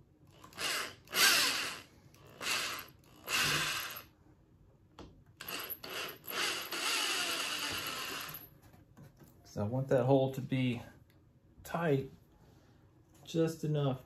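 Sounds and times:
electric drill bursts: 0.4 - 4.1, 5.4 - 8.5.

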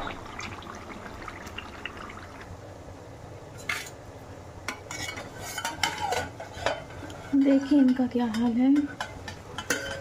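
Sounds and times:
low frying sizzle: 0.0 - 10.0
ladle clinking against metal pan: 7.4 - 10.0.

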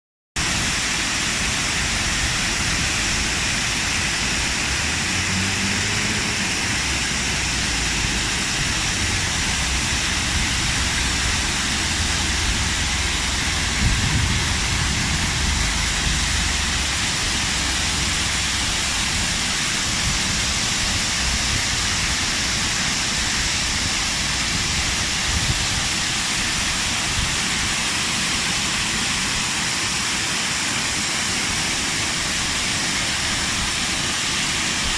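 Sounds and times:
waterfalls splashing: 0.4 - 34.9
low rumbles: 0.5 - 22.2.

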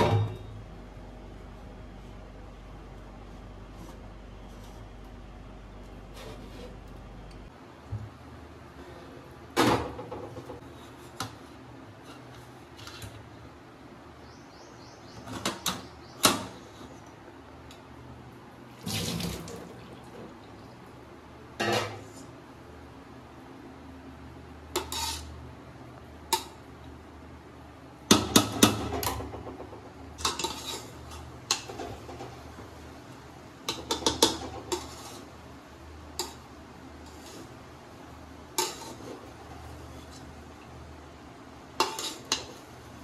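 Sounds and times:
metal spoon scraping pot: 24.8 - 25.4, 30.2 - 31.8, 33.8 - 35.3, 38.6 - 39.2, 41.8 - 42.6.

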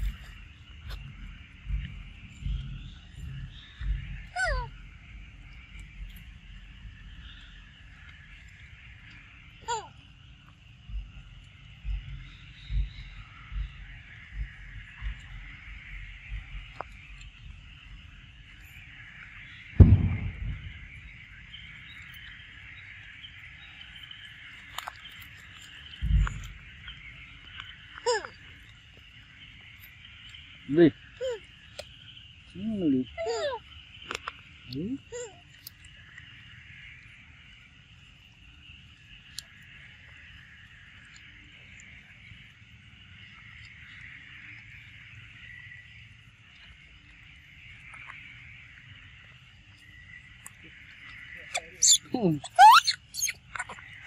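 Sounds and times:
dull low thumps: 0.0 - 7.2, 10.8 - 18.1, 19.8 - 21.6, 26.0 - 26.7
low rumble: 0.0 - 8.0, 19.8 - 22.2, 25.9 - 27.1
insect chorus: 0.0 - 54.0.

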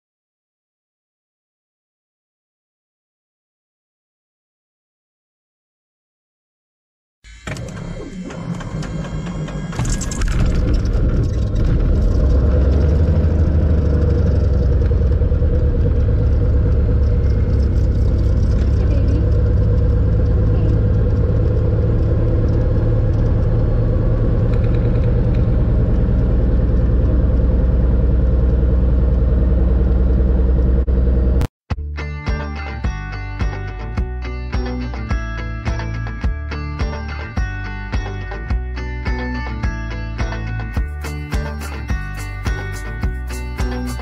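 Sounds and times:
airplane engine drone in cabin: 7.3 - 31.5.

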